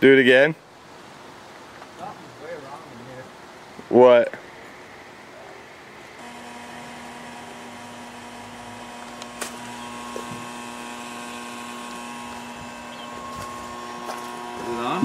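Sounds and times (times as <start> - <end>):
higher electrical tone: 6.1 - 15.0
loud electrical buzz: 6.2 - 15.0.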